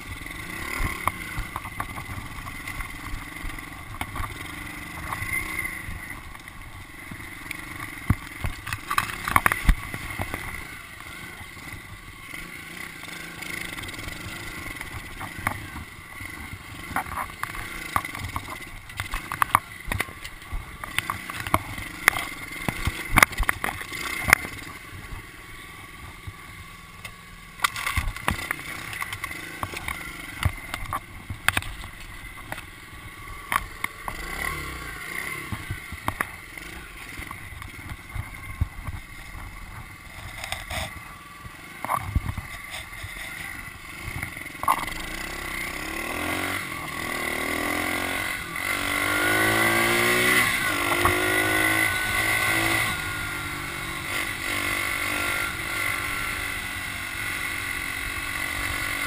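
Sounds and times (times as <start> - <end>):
bike rattling over rough ground: 0.0 - 59.0
motorbike engine revving: 0.0 - 59.0.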